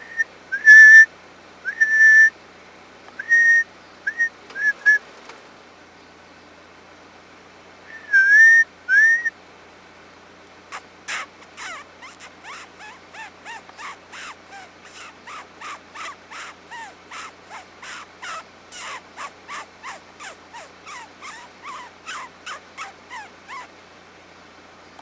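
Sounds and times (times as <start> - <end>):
short harsh calls: 10.7 - 23.8.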